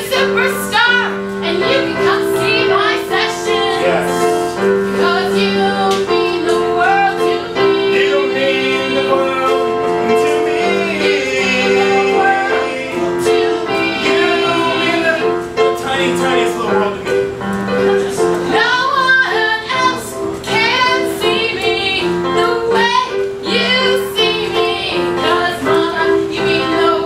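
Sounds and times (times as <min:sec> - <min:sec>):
person singing with vibrato: 0:00.0 - 0:16.0
sustained keyboard accompaniment: 0:00.0 - 0:27.0.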